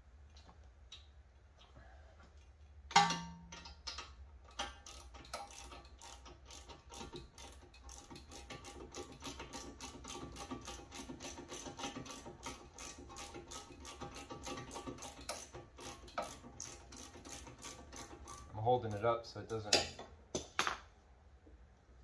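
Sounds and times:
ratchet wrench clicking: 0:03.5 - 0:18.5.

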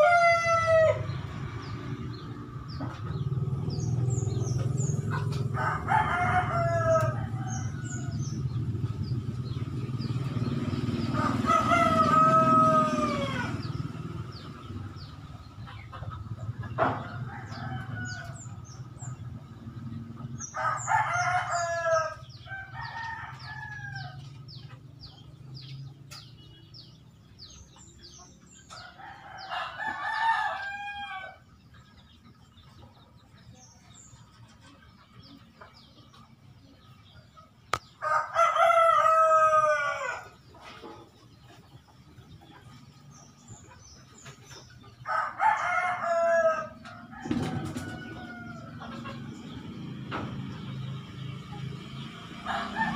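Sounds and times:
rooster crowing: 0:00.0 - 0:01.2, 0:05.5 - 0:08.5, 0:11.0 - 0:13.8, 0:17.0 - 0:18.6, 0:20.5 - 0:24.2, 0:28.8 - 0:31.4, 0:38.0 - 0:40.3, 0:45.0 - 0:48.8, 0:52.4 - 0:52.9
sparrows chirping: 0:00.0 - 0:52.9.

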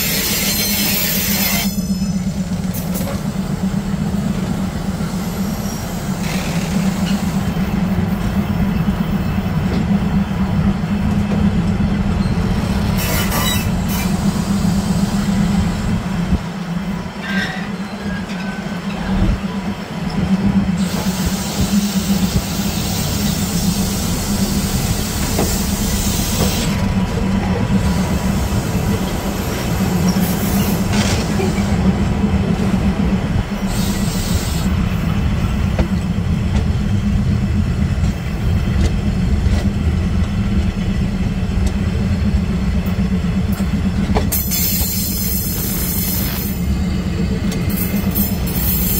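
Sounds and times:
high squealing wheels: 0:00.0 - 0:03.0, 0:12.0 - 0:14.2, 0:17.1 - 0:19.2, 0:27.8 - 0:31.7
train wheels rumbling on rails: 0:00.0 - 0:48.9.

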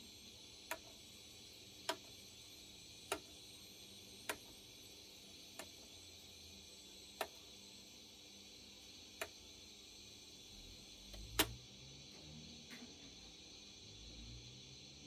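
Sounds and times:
turntable clicks: 0:00.6 - 0:01.0, 0:03.1 - 0:03.4, 0:11.1 - 0:11.6.

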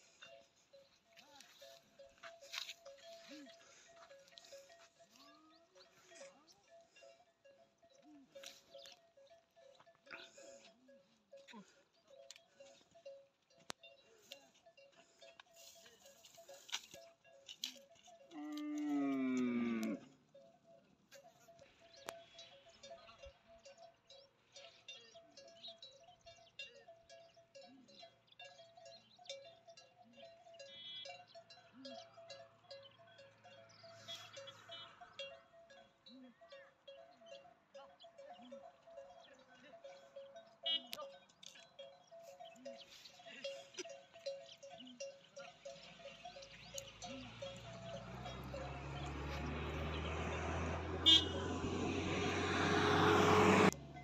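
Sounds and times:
small bell clinking: 0:00.0 - 0:19.5, 0:20.3 - 0:51.6
engine humming: 0:45.5 - 0:54.0.

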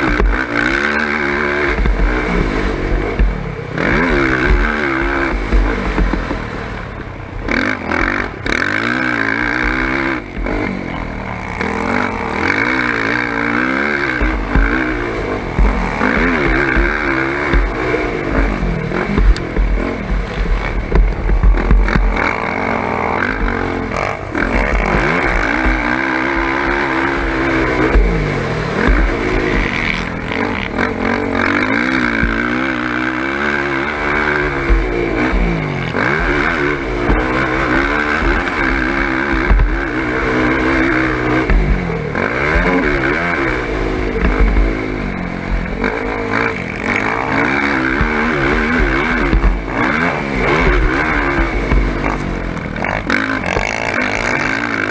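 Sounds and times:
atv engine revving: 0:00.0 - 0:54.9
low buffeting rumbles on microphone: 0:14.1 - 0:31.0.

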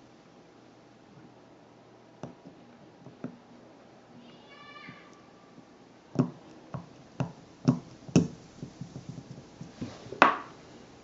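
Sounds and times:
taps on an eggshell: 0:06.2 - 0:09.3.

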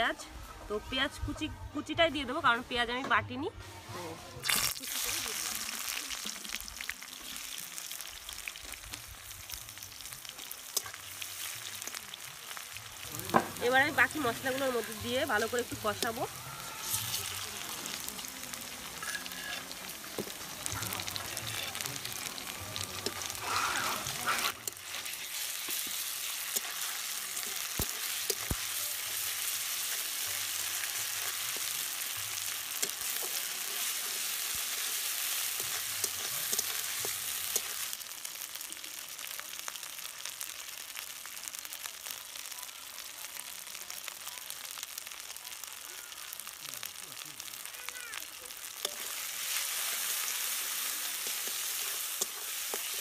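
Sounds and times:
onions sizzling in hot oil: 0:00.0 - 0:53.0
metal spatula scraping a pan: 0:18.9 - 0:19.9, 0:23.0 - 0:28.6.

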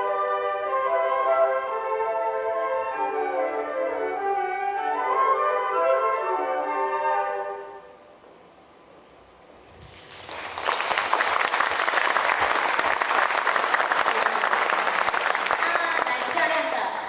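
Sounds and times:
audience applause: 0:09.9 - 0:17.0.

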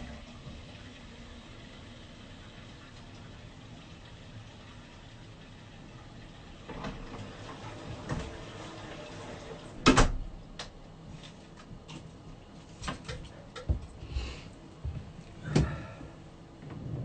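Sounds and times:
knocks and clunks in a room: 0:06.6 - 0:09.2, 0:09.8 - 0:17.0.

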